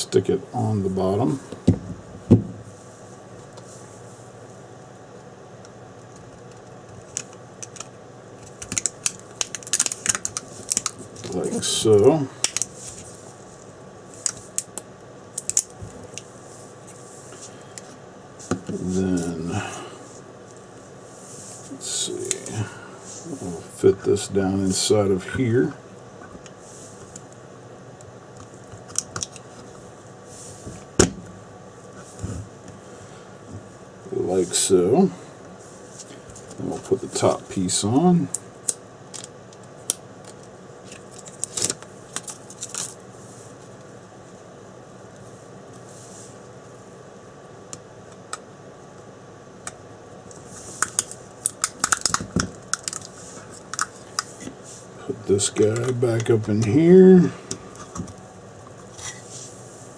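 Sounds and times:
battery cells clicking into plastic housing: 50.8 - 53.1.

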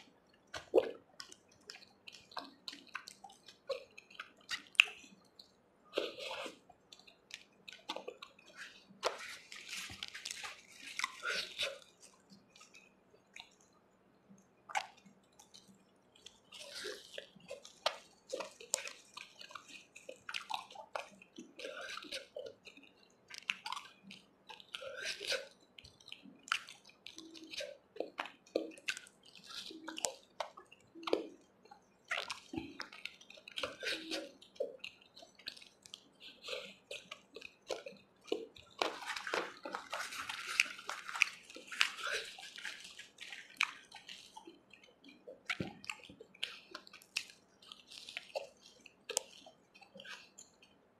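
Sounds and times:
wet chewing and lip-smacking: 0.0 - 50.9
sharp mouth clicks: 32.1 - 50.7.

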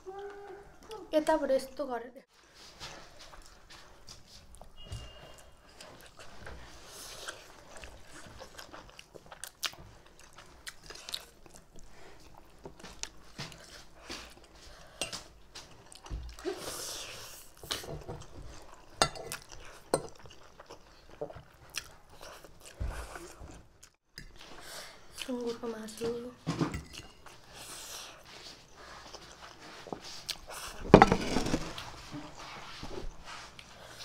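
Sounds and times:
close-up chewing: 2.9 - 25.5, 26.9 - 30.8.

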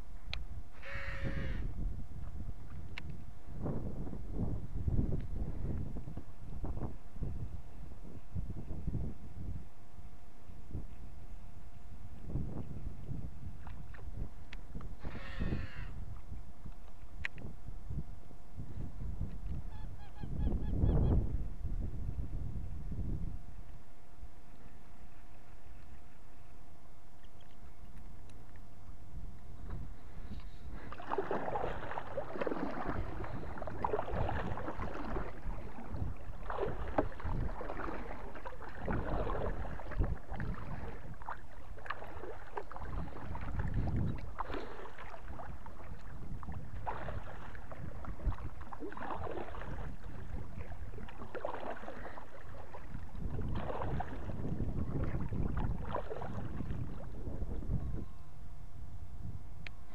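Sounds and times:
kayak paddle splashing in water: 30.4 - 57.3.

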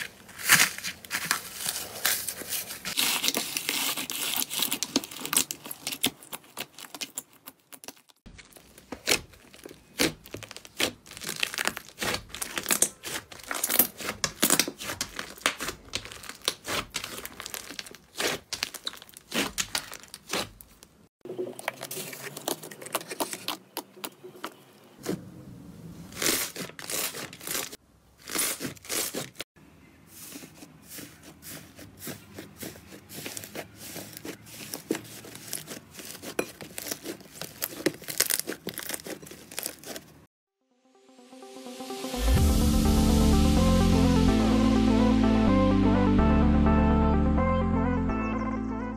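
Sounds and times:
slime clicking and crackling: 2.9 - 20.9, 31.0 - 40.2.

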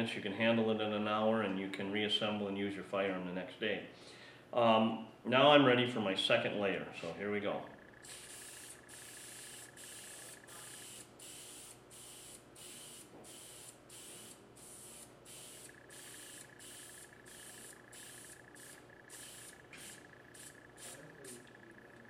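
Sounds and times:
aerosol sprayer hissing: 8.0 - 21.5.

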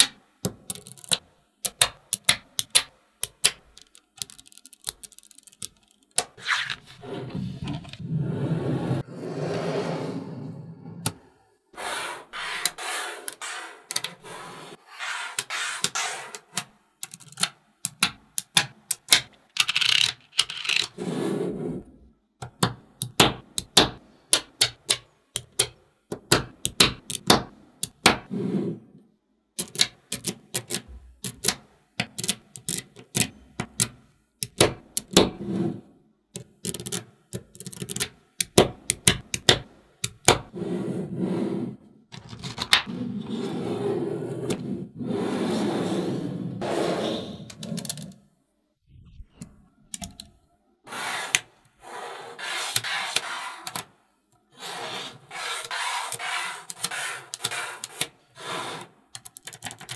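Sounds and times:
magnetic balls clicking together: 0.0 - 6.4, 15.8 - 20.9, 22.4 - 28.1, 29.6 - 35.2, 36.3 - 40.4, 59.1 - 59.9
magnetic balls rubbing and rolling: 11.8 - 22.0, 40.1 - 48.3, 50.9 - 54.0, 54.6 - 59.9.

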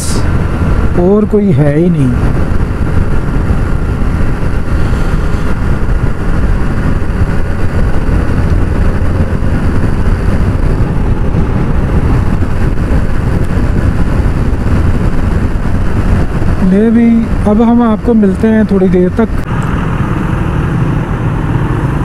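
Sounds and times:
motorcycle engine rumble: 0.0 - 22.0
road and wind noise: 0.0 - 22.0.

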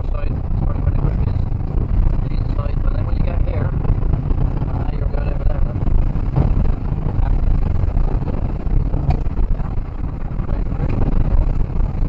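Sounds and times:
rally car engine and road noise: 0.0 - 12.0
knocks inside car: 6.3 - 6.6.

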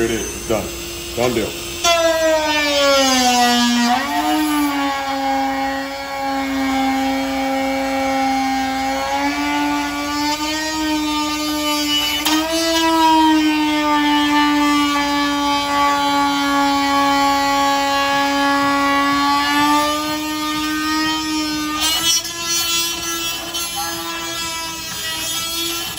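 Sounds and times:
rotary tool grinding plastic: 19.4 - 25.9.

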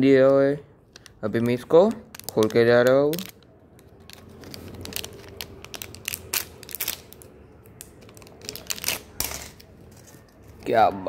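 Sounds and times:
foil wrapper crinkling and tearing: 2.0 - 10.7.

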